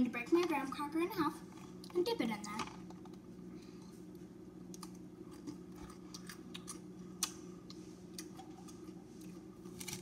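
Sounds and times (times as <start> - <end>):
steady low hum: 0.0 - 10.0
cracker crunching: 4.7 - 10.0.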